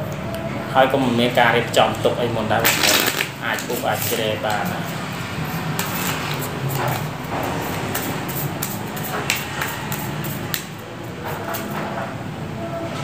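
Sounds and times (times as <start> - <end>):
playing cards shuffling: 2.6 - 5.1, 5.8 - 11.8.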